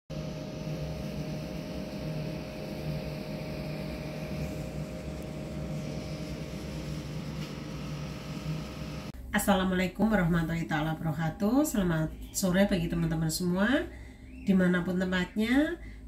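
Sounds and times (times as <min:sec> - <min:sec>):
machine hum: 0:00.1 - 0:09.3.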